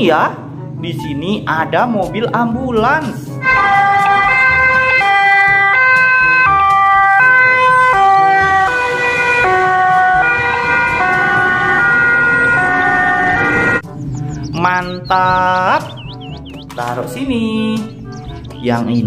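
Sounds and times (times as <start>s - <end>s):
two-tone emergency siren: 3.4s - 14.5s.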